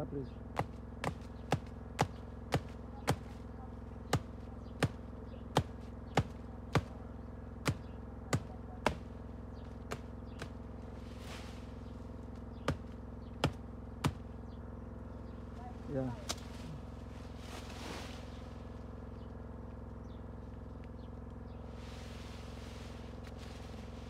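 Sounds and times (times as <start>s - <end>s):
machete chopping branch: 0.6s - 3.5s, 4.1s - 7.0s, 7.6s - 11.6s, 12.3s - 14.4s, 16.2s - 16.6s
rustle: 10.4s - 13.0s, 15.4s - 24.0s.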